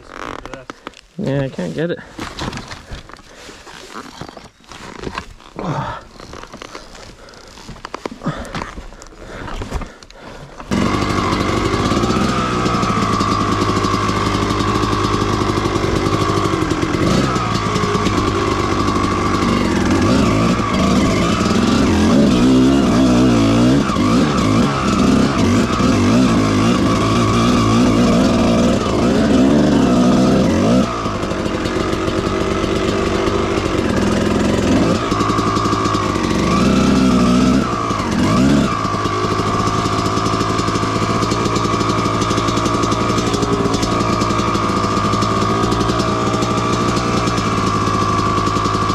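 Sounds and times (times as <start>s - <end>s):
two-stroke dirt bike engine revving: 10.7s - 48.9s.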